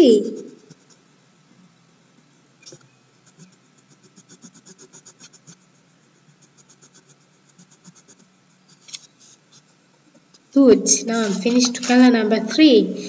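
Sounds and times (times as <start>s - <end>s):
crayon scratching on paper: 0.3s - 1.0s, 3.2s - 9.7s.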